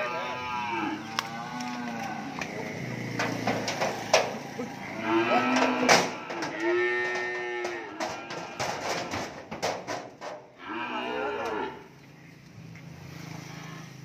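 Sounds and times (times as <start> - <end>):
cattle mooing: 0.0 - 9.4, 10.6 - 11.9, 13.3 - 14.0
hooves knocking on steel ramp: 3.2 - 4.4, 5.5 - 10.6.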